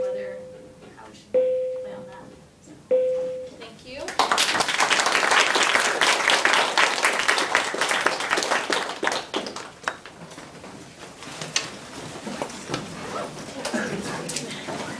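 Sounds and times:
students applauding: 4.1s - 10.2s.

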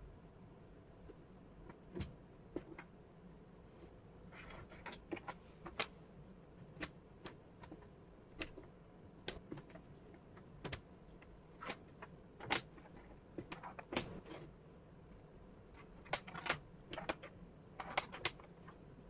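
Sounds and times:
wooden puzzle pieces clicking on table: 4.3s - 6.0s, 6.7s - 14.5s, 15.8s - 18.8s.

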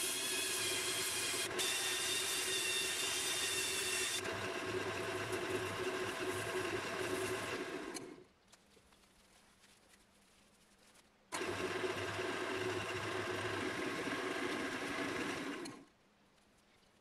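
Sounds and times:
cordless drill whine: 0.0s - 8.0s
wood lathe humming: 0.0s - 8.0s, 11.3s - 15.8s
hand sanding spinning bowl: 4.8s - 7.8s.

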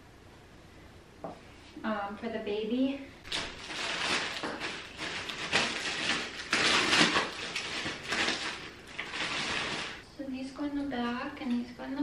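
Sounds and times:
plastic bag crinkling: 3.3s - 10.0s.

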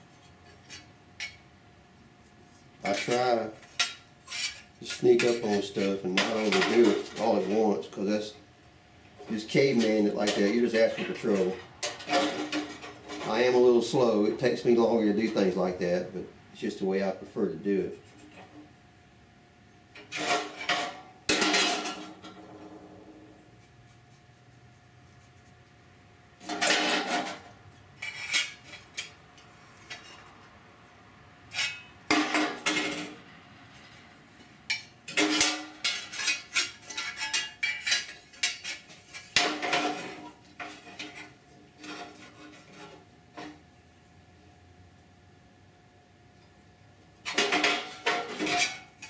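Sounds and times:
sheet steel clattering and scraping: 2.8s - 8.2s, 9.2s - 14.6s, 20.0s - 23.3s, 26.4s - 30.4s, 31.5s - 34.0s, 34.7s - 43.6s, 47.2s - 49.0s.

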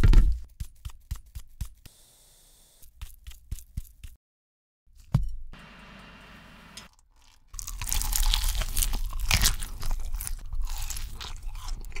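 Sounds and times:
crunching of fried chicken: 6.9s - 12.0s.

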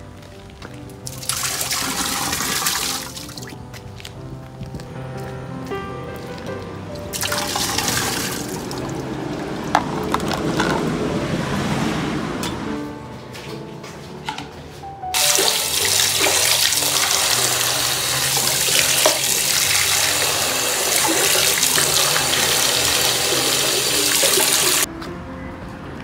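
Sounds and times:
tap water running into bowl: 1.1s - 3.5s, 7.2s - 9.0s, 15.2s - 24.9s.

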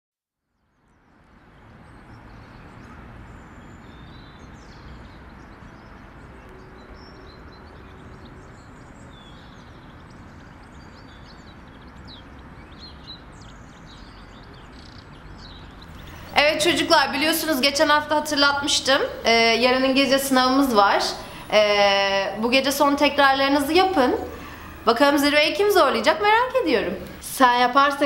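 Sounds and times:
low background noise: 0.4s - 28.0s
small birds chirping: 0.6s - 28.0s.

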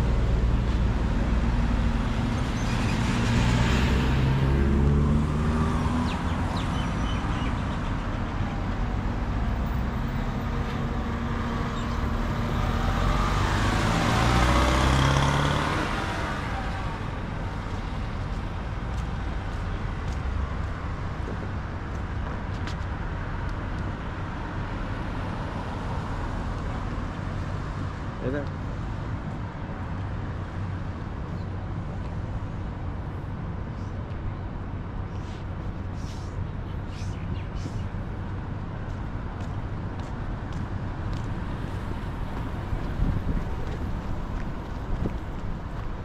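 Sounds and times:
cars passing on street: 0.0s - 46.0s.

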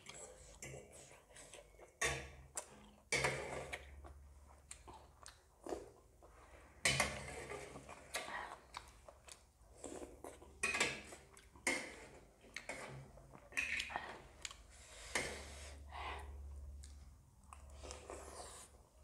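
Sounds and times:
chewing: 0.0s - 6.6s, 7.3s - 14.7s, 16.7s - 19.0s
slurping noodles and broth: 17.7s - 19.0s.

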